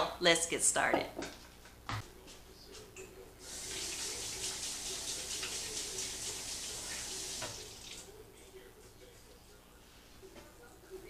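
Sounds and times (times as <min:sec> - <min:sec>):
faucet water running into sink: 0:03.4 - 0:08.1.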